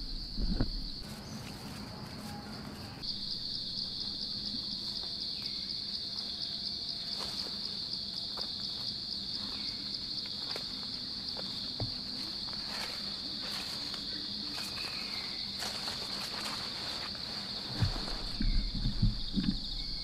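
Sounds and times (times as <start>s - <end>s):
insects trilling: 0.0s - 20.0s
rustling undergrowth: 0.0s - 20.0s
footsteps in undergrowth: 0.6s - 3.0s, 7.0s - 19.8s.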